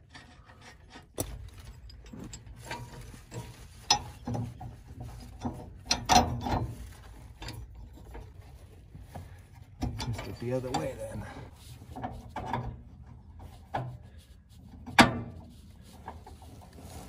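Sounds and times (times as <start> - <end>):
metal tools clicking and clanking: 0.0 - 8.2, 9.8 - 11.4.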